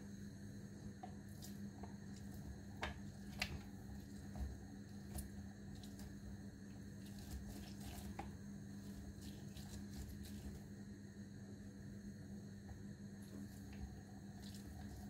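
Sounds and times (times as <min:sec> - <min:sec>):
wet squishes of juicing orange: 0:01.0 - 0:10.7, 0:13.2 - 0:15.0.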